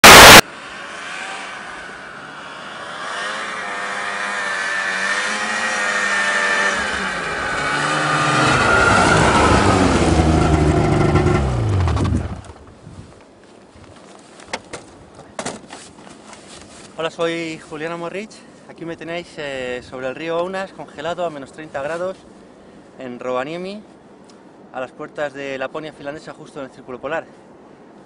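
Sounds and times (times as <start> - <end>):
very loud burst: 0.0 - 0.5
snowmobile engine: 0.0 - 12.4.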